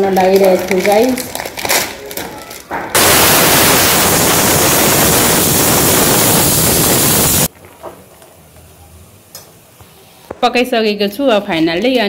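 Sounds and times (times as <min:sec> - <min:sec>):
steam hissing from a pot: 0:03.0 - 0:07.5.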